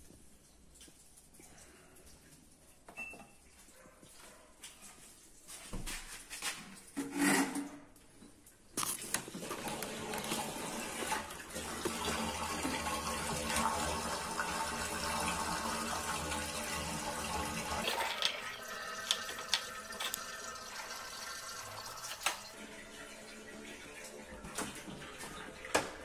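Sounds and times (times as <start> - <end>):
water trickling and dripping: 0.0 - 5.2, 9.6 - 26.0
water gushing from drain hose: 9.3 - 26.0.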